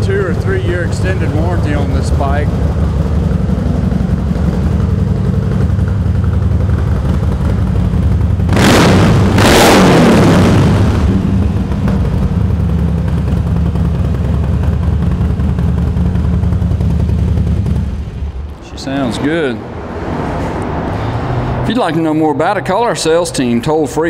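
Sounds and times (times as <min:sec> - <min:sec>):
motorcycle engine idling: 0:00.0 - 0:08.6, 0:11.1 - 0:18.6
motorcycle engine revving: 0:00.0 - 0:18.6.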